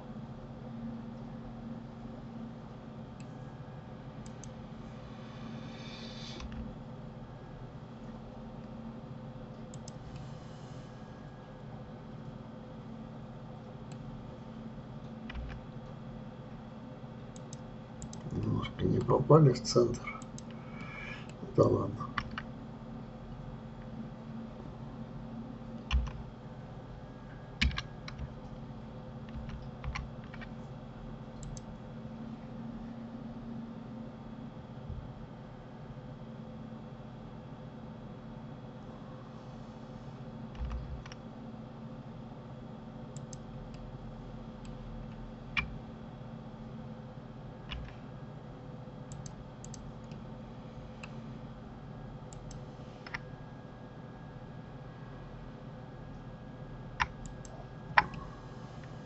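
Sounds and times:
low electrical hum: 0.0s - 59.0s
keyboard and mouse clicking: 9.7s - 10.0s, 15.3s - 15.6s, 17.3s - 18.3s, 22.1s - 22.5s, 25.9s - 26.2s, 27.6s - 28.4s, 29.2s - 30.5s, 31.4s - 31.7s, 40.5s - 41.2s, 43.1s - 43.8s, 47.7s - 48.0s, 49.1s - 50.2s, 57.0s - 58.2s.

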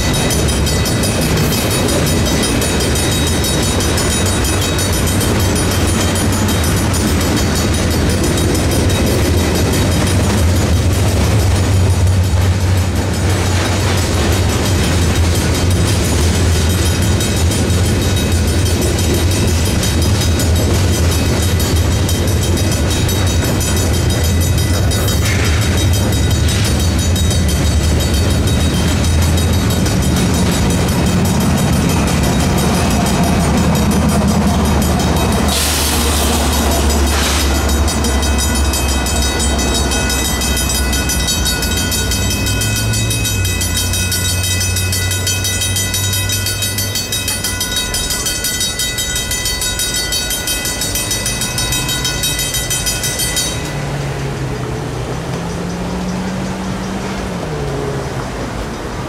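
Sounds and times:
crossing bell ringing: 0.0s - 59.0s
freight cars rumbling: 0.0s - 59.0s
hissing bursts: 35.5s - 37.7s.

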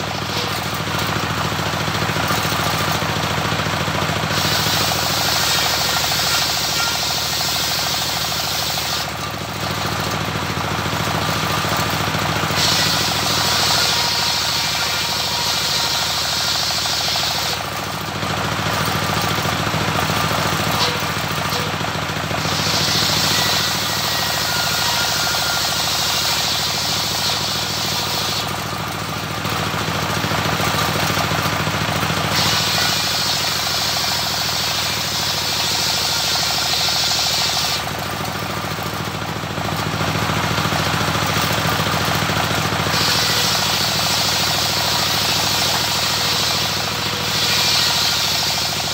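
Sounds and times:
stationary engine running: 0.0s - 48.9s
saw blade hissing through wood: 4.3s - 9.1s, 12.4s - 17.6s, 22.4s - 28.7s, 32.2s - 37.9s, 42.8s - 48.9s.

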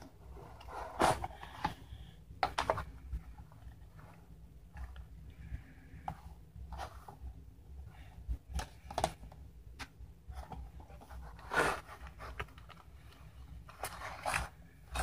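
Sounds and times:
scratchy cardboard rustle: 0.0s - 1.8s, 10.3s - 15.0s.

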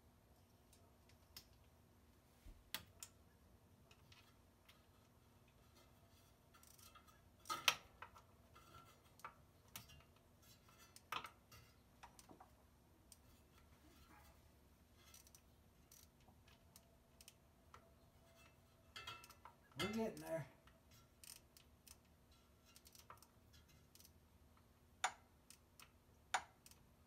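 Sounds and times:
socket wrench clicking: 15.1s - 16.2s.

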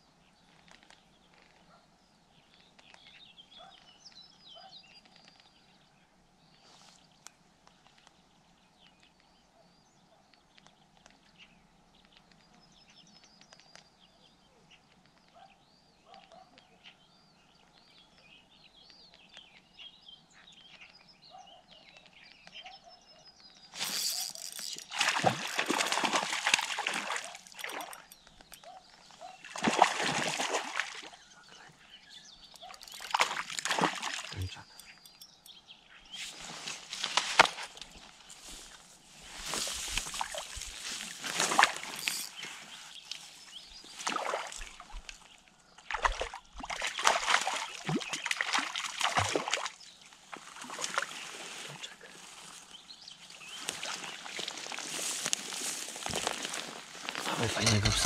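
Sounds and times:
fish splashing in water: 23.8s - 28.2s, 29.4s - 31.2s, 32.6s - 34.5s, 45.9s - 49.8s.

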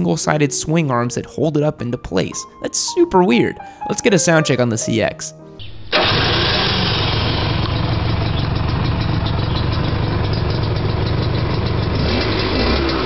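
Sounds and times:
two-stroke engine idling: 5.9s - 13.0s.

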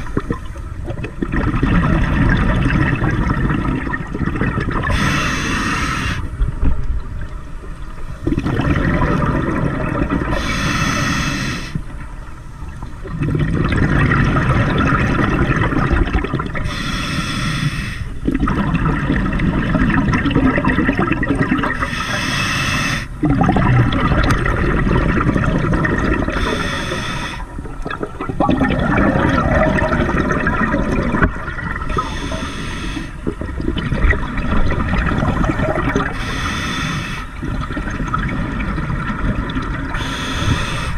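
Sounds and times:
exhaled air bubbling: 0.0s - 40.9s
regulator hissing inhale: 4.9s - 6.3s, 10.3s - 11.9s, 16.6s - 18.2s, 21.8s - 23.2s, 26.4s - 27.6s, 31.9s - 33.2s, 36.1s - 37.4s, 40.0s - 40.9s.

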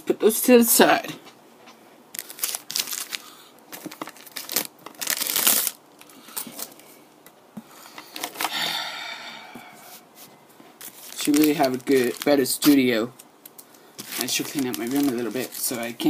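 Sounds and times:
foil wrappers crinkling: 2.1s - 6.8s, 10.8s - 16.0s.

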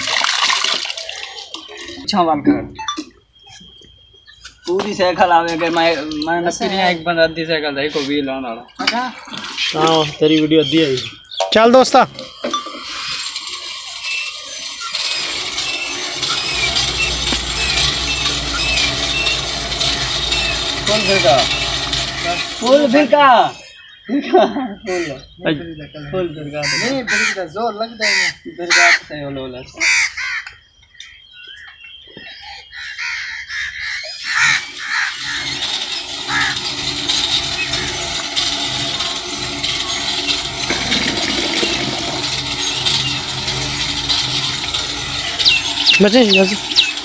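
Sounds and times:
water gushing and splashing: 0.0s - 1.8s, 39.7s - 42.6s
hand-spun pump whirring: 11.9s - 23.5s, 34.2s - 47.0s
low hum: 12.2s - 23.0s
deep hum: 15.0s - 23.0s, 35.3s - 47.0s
crows cawing: 26.6s - 29.2s, 29.8s - 30.6s, 32.5s - 35.6s, 36.2s - 36.8s.

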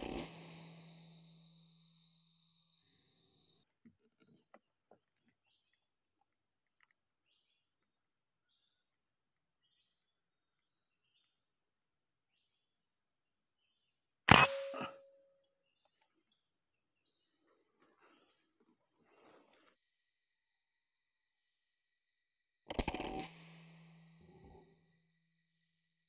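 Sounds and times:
faint chirps: 0.1s - 19.7s.

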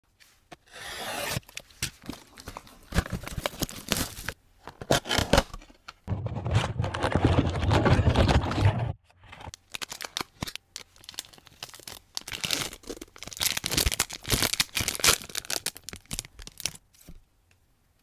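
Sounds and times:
plastic shrink wrap crinkling: 9.5s - 16.8s.

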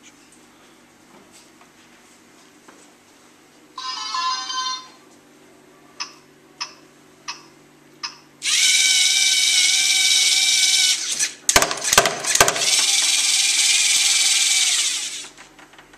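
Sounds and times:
small electric motors whirring: 8.4s - 15.4s
loud knocks and clatters: 11.5s - 12.9s.

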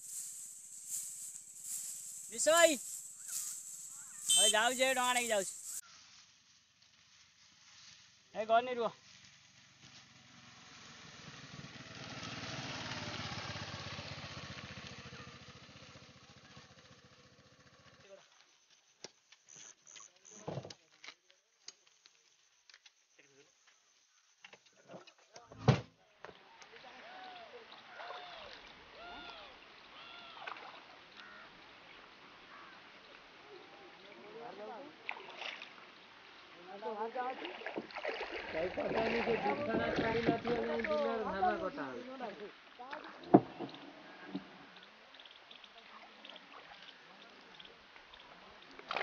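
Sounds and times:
faint rising and falling calls: 0.0s - 5.8s
motor scooter engine passing: 9.6s - 18.0s
water moving against boat hull: 37.2s - 41.2s.

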